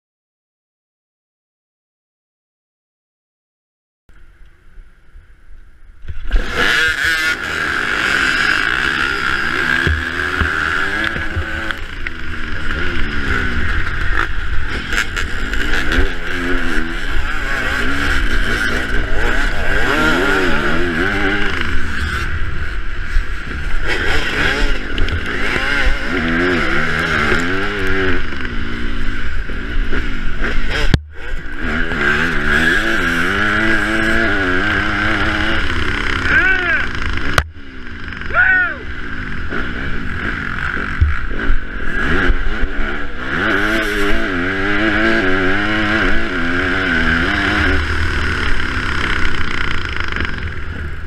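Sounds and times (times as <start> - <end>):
dirt bike engines at full throttle: 4.1 - 51.0.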